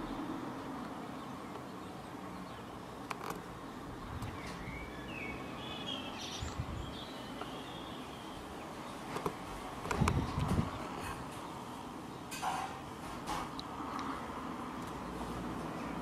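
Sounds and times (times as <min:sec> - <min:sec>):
bird chirping: 0:00.0 - 0:09.1.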